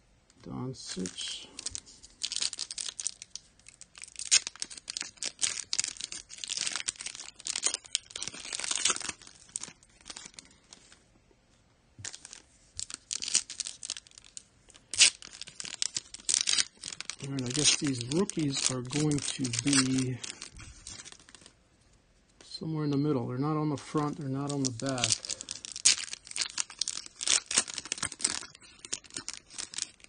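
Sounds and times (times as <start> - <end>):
card wrappers tearing and crinkling: 0.8 - 11.0, 12.0 - 21.6, 23.8 - 30.0.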